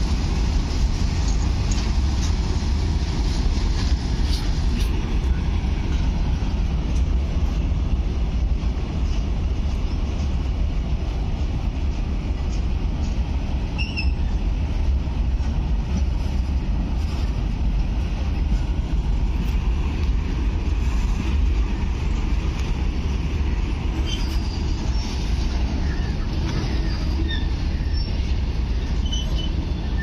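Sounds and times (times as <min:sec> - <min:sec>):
freight wagons rumbling on rails: 0:00.0 - 0:30.0
high wheel squeak: 0:13.7 - 0:14.3, 0:24.0 - 0:25.2, 0:25.8 - 0:30.0.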